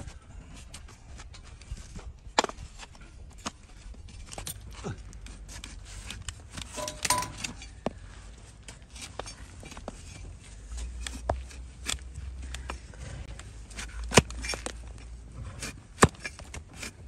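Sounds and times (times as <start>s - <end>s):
hoof trimming clicks and scrapes: 0.6s - 17.0s
ringing clinks: 6.8s - 7.7s.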